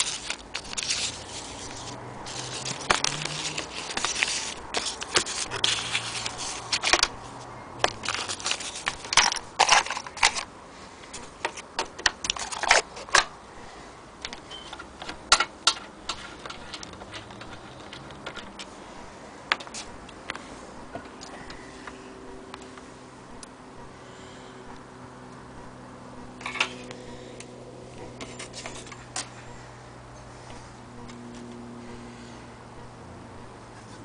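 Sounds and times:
paper rustling: 0.0s - 10.5s, 28.1s - 29.4s.

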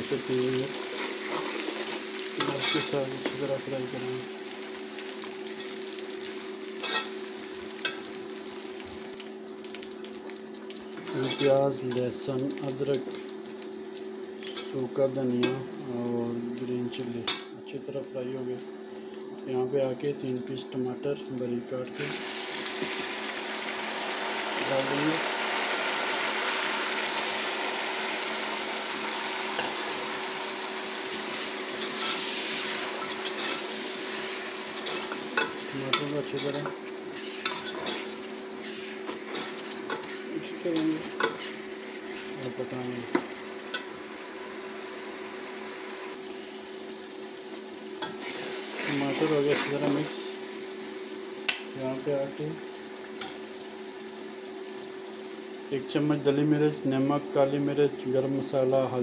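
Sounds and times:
onions sizzling in hot oil: 0.0s - 59.0s
ladle stirring: 31.2s - 43.9s.

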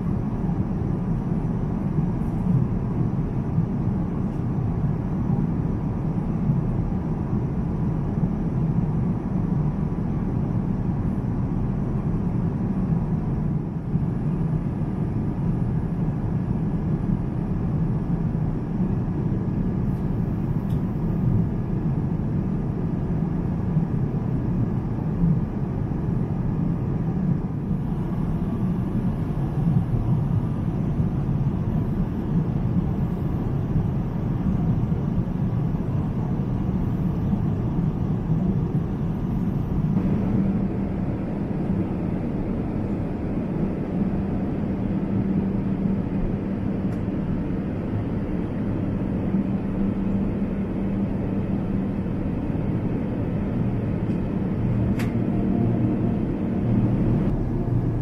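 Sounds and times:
airplane cabin low rumble: 0.0s - 58.0s.

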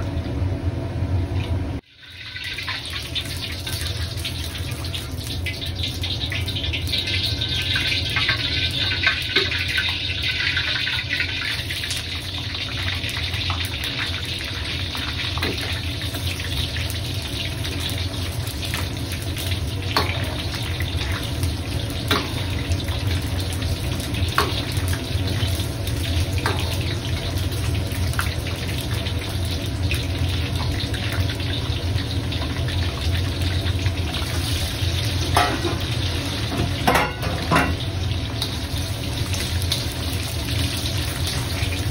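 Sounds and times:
gas burner running: 0.0s - 41.9s
oil sizzling and bubbling: 0.0s - 41.9s.

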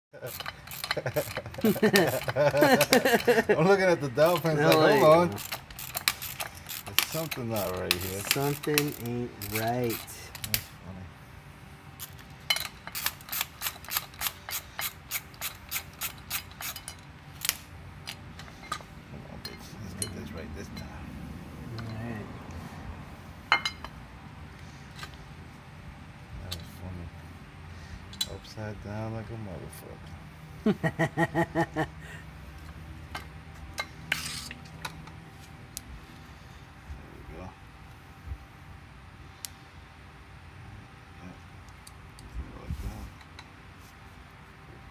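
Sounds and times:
person laughing: 0.2s - 3.7s, 30.6s - 32.2s
socket ratchet clicking: 0.3s - 3.3s, 4.4s - 10.6s, 12.0s - 18.2s.

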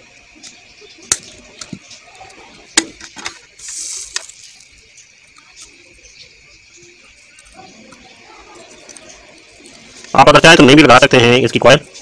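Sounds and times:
soldering hiss: 3.4s - 5.6s.

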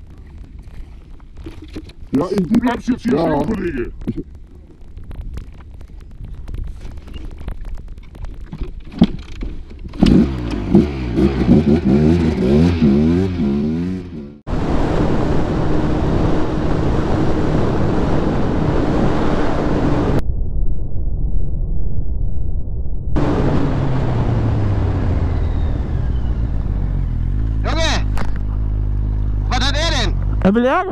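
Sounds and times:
knocks and rustles: 0.0s - 2.7s, 3.9s - 10.6s
wind rush: 2.4s - 8.8s, 14.5s - 27.2s
dirt bike engine revving: 10.0s - 14.4s.

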